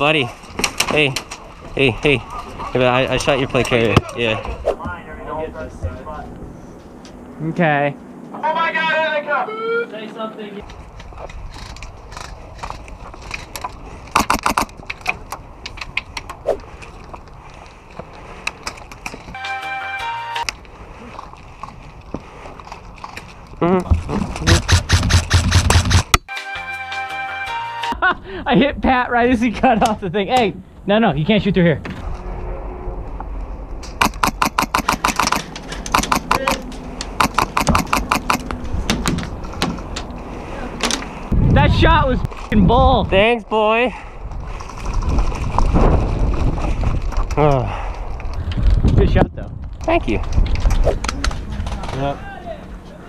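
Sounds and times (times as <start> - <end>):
airsoft rifle burst: 14.1 - 14.8, 34.0 - 36.6, 37.2 - 38.4.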